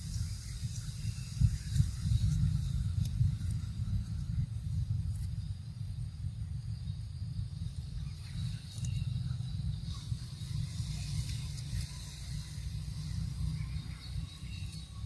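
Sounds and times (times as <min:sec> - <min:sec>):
insects buzzing: 0:00.0 - 0:15.0
low rumble: 0:00.0 - 0:15.0.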